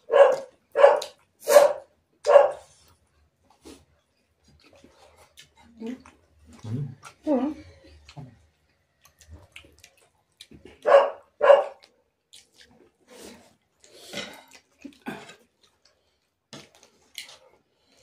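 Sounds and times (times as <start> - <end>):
dog barking: 0.0 - 2.7, 10.8 - 11.9
faint eating sounds: 0.0 - 18.0.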